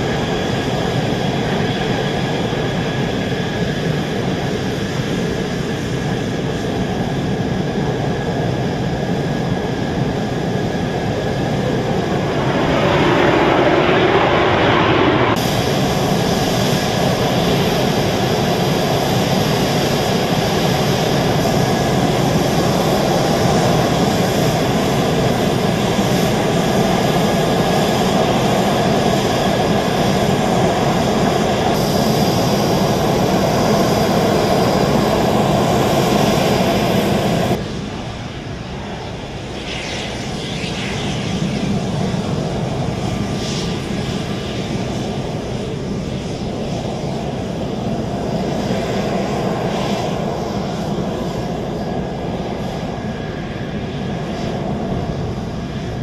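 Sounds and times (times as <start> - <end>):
jet engines rushing: 0.0 - 56.0
faint high whine: 9.3 - 18.7.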